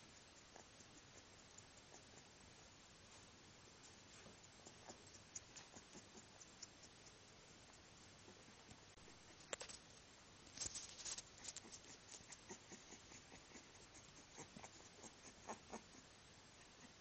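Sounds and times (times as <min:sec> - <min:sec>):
soft scuffling: 0:10.5 - 0:12.3.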